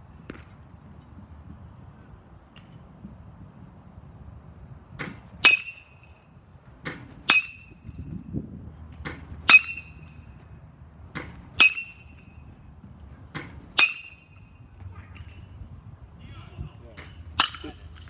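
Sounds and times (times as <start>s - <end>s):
metal bat pinging balls: 13.8s - 14.4s.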